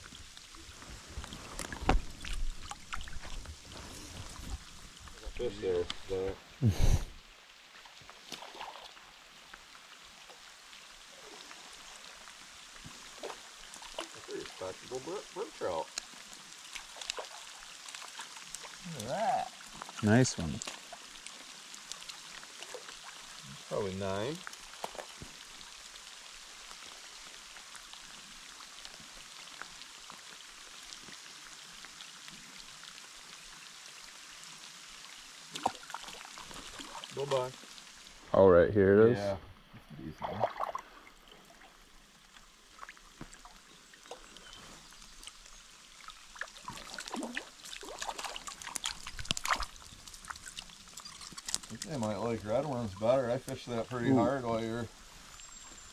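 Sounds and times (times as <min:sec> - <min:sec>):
light rain hissing on stream: 0:00.0 - 0:55.9.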